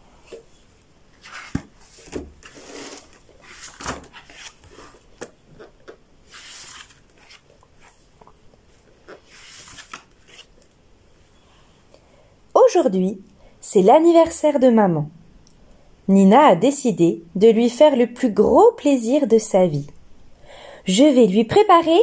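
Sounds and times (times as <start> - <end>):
book pages rustling: 0.2 - 10.8.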